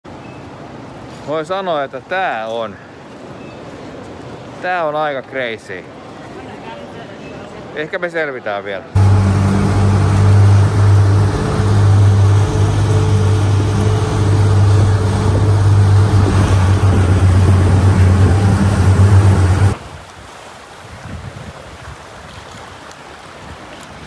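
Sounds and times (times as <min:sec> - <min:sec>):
water rushing from wake: 0:00.1 - 0:08.2, 0:08.9 - 0:24.0
speedboat engine droning: 0:09.0 - 0:19.8.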